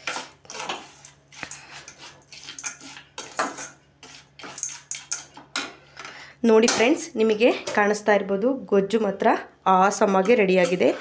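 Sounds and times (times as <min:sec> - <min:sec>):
spoon stirring and scraping pan: 0:00.0 - 0:06.0, 0:10.0 - 0:11.0.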